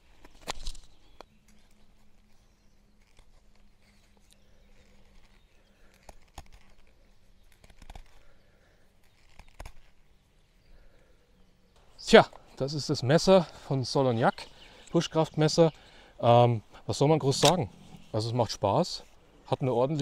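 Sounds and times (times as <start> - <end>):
wood cracking: 0.1 - 2.2, 3.0 - 8.4, 9.0 - 10.0, 17.2 - 18.2
knife cutting dry wood: 1.4 - 10.1.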